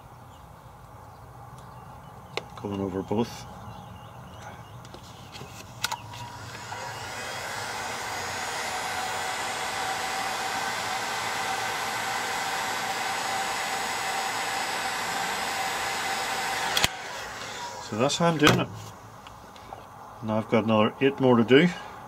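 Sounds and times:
fan whine: 0:04.8 - 0:21.1
heat gun blowing air: 0:06.1 - 0:18.9.

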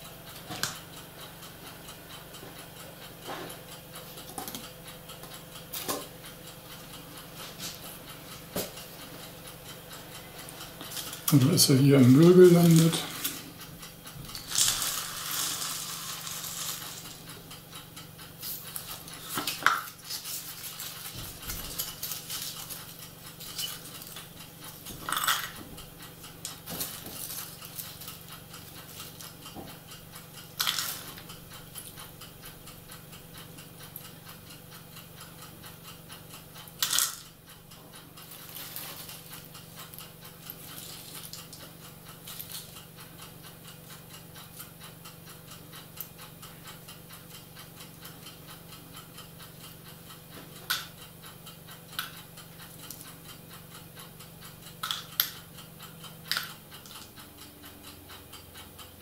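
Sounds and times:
plastic pieces clattering: 0:14.4 - 0:17.2.

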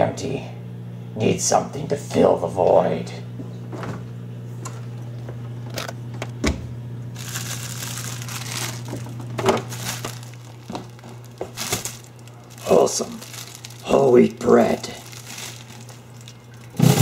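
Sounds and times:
crinkling and rustling handling noise: 0:07.2 - 0:17.0.

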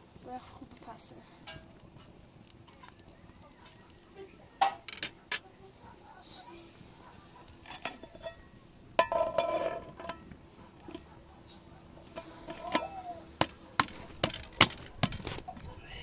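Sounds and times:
metal pot and lid clanking: 0:01.4 - 0:01.7, 0:04.6 - 0:05.5, 0:07.6 - 0:11.0, 0:12.1 - 0:15.6.

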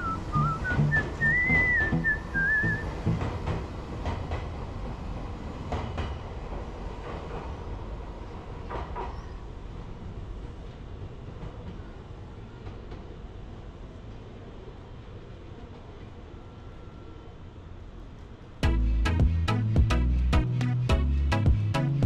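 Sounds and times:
high wavering whistle: 0:00.0 - 0:03.0
electric train rumbling: 0:00.0 - 0:22.0.

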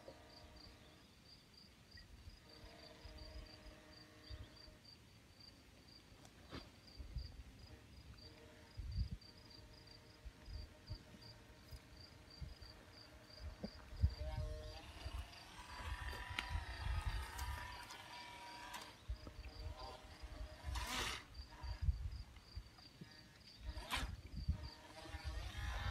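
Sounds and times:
insect chirping in rapid pulse: 0:00.2 - 0:06.0, 0:06.8 - 0:25.9
wind rumbling on microphone: 0:08.7 - 0:09.4, 0:10.2 - 0:17.9, 0:19.0 - 0:22.7, 0:23.6 - 0:25.9.

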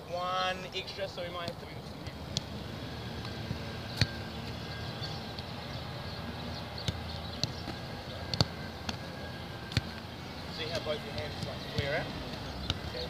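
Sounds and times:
boots kicking rugby balls: 0:06.8 - 0:09.0.

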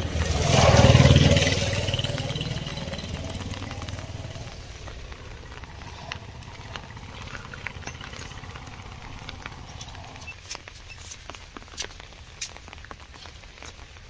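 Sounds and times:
steady low rumble: 0:00.0 - 0:10.4.

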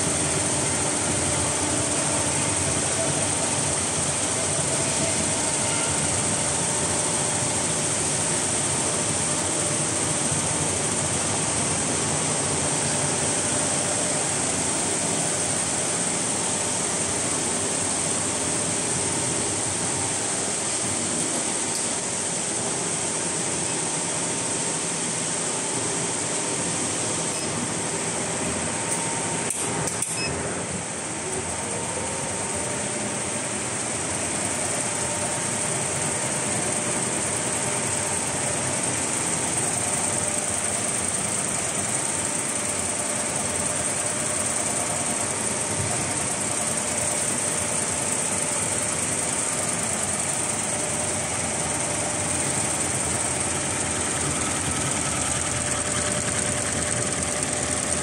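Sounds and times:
embroidery machines whirring: 0:30.6 - 0:58.0.

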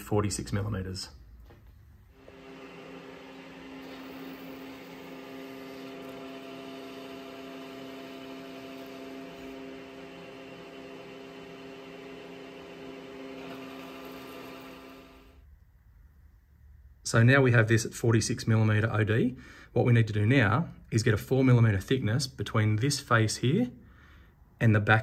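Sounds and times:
metal lathe running: 0:02.2 - 0:15.4.

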